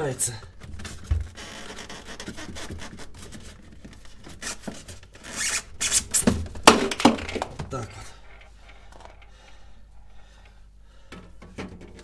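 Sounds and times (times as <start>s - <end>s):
plastic rubbing and scraping: 0.5s - 7.6s.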